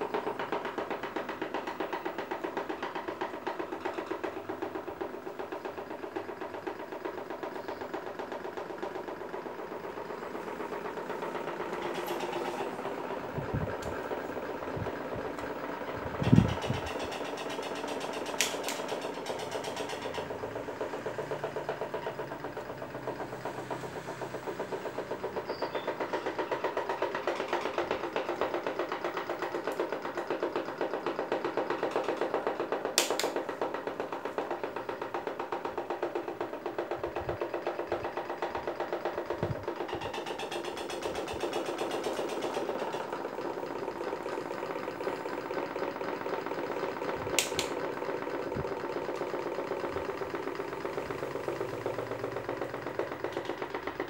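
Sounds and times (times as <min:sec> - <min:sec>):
electric fans humming and rattling: 0:00.0 - 0:54.0
sharp click: 0:18.4 - 0:18.9, 0:47.4 - 0:47.8.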